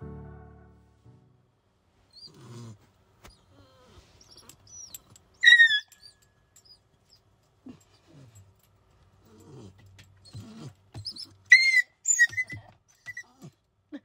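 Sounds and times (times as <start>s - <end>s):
dog whining: 2.1s - 8.4s, 9.3s - 14.0s.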